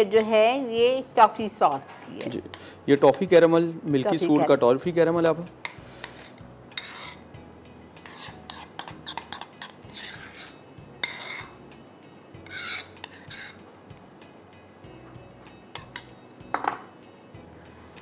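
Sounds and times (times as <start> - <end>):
utensil scraping a container: 5.6 - 7.2, 8.0 - 11.6, 12.4 - 13.6.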